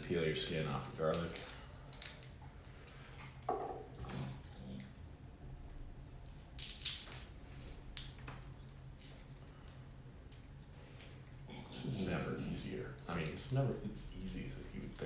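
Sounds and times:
low steady hum: 0.0s - 15.0s
garlic skins crackling and rustling: 0.6s - 2.9s, 6.2s - 11.2s.

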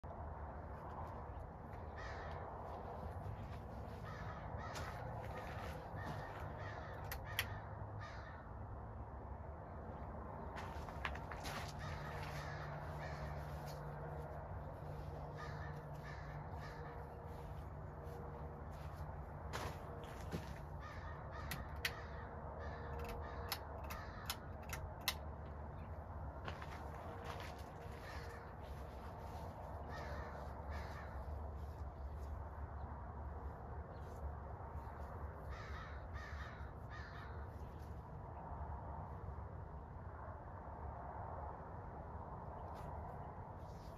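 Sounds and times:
steady low hum: 0.0s - 43.9s
birds calling: 1.7s - 8.5s, 11.0s - 32.9s, 33.9s - 38.0s
sharp ticks: 21.4s - 25.6s.

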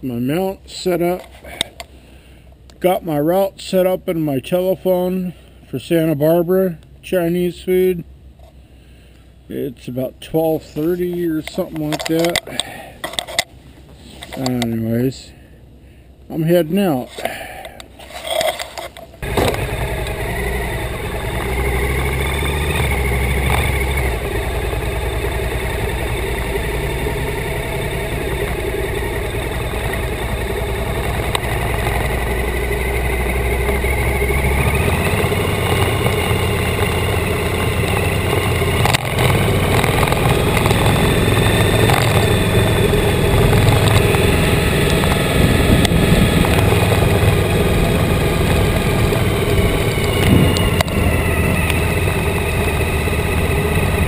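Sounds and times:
motorcycle engine running: 18.8s - 54.0s.

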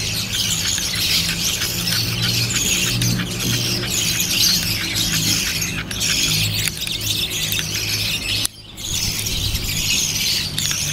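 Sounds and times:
steady low hum: 0.0s - 10.9s
chicks raspy begging calls: 0.3s - 6.8s.

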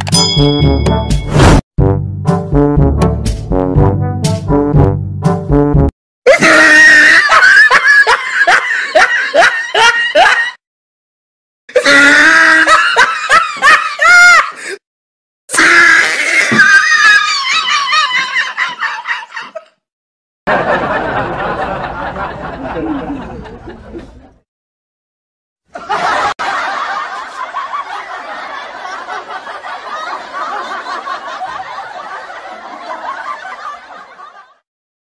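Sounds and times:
person laughing: 6.3s - 10.6s.

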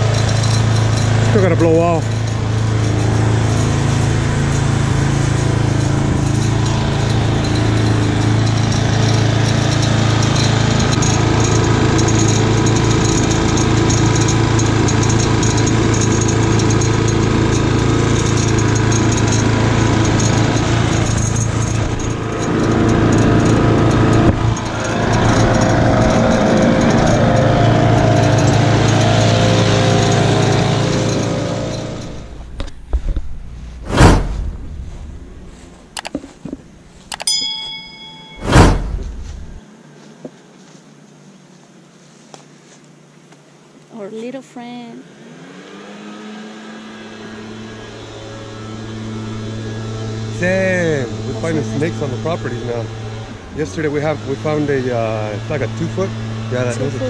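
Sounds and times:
lawn mower engine running: 0.0s - 39.6s, 45.4s - 57.0s
loud whoosh: 32.1s - 36.0s, 38.3s - 39.6s.

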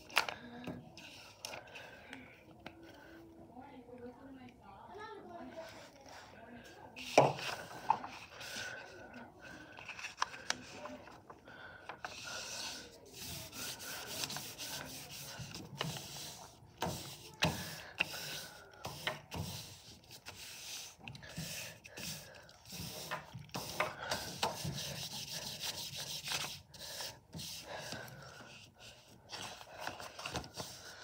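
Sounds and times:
paper rubbing and rustling: 12.0s - 31.0s.

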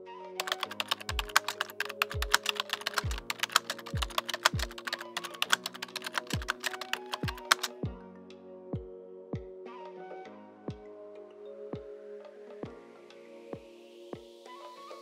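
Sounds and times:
keyboard key clicks: 0.4s - 7.7s
background music with drum beat: 2.1s - 2.4s, 3.0s - 4.8s, 6.2s - 8.0s, 8.8s - 9.6s.

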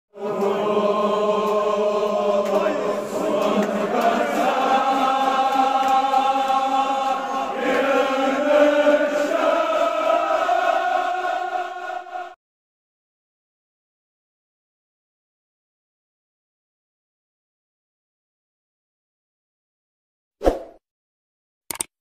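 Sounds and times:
men chanting together: 0.1s - 12.4s.

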